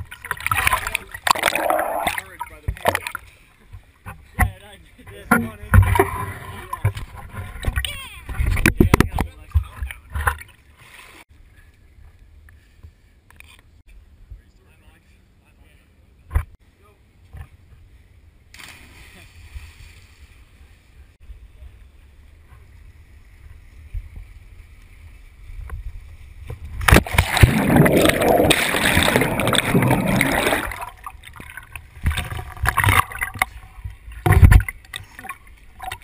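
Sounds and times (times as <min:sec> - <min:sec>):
body plunging into water: 0:00.0 - 0:03.2, 0:26.8 - 0:36.0
underwater churning and bubbling: 0:00.0 - 0:04.3, 0:05.4 - 0:07.8, 0:26.7 - 0:36.0
water splashing and sloshing: 0:00.0 - 0:11.3, 0:22.6 - 0:36.0.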